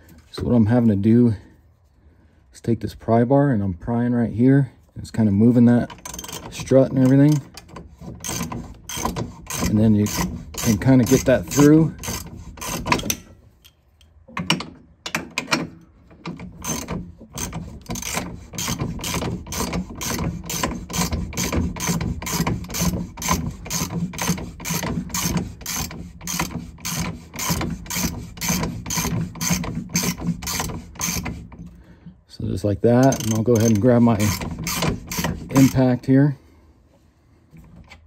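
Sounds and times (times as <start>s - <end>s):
ratchet wrench clicking: 33.0s - 35.8s.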